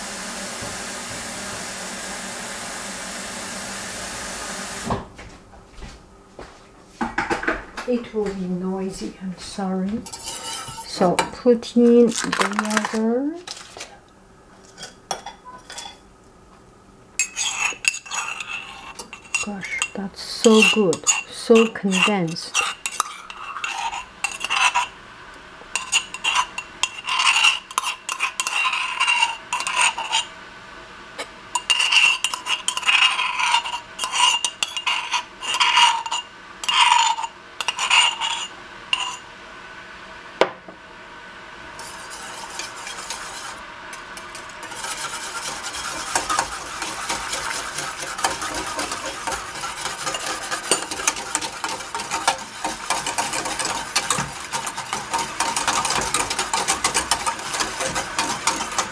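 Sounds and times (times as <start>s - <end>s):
wire whisk clinking against pan: 44.2s - 58.9s.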